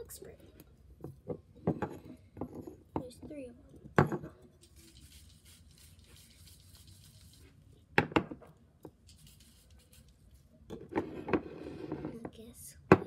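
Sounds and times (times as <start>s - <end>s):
faint rubbing and rustling: 9.1s - 12.3s.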